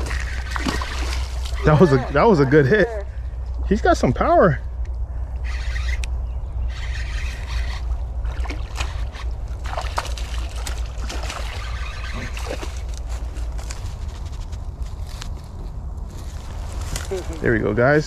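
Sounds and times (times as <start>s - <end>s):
fish splashing in water: 0.0s - 2.0s, 7.4s - 12.9s.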